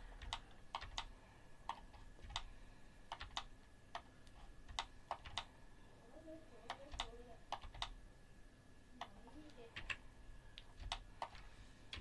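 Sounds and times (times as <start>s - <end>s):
keyboard and mouse clicking: 0.1s - 1.1s, 1.7s - 2.5s, 3.1s - 5.5s, 6.6s - 8.0s, 9.0s - 12.0s.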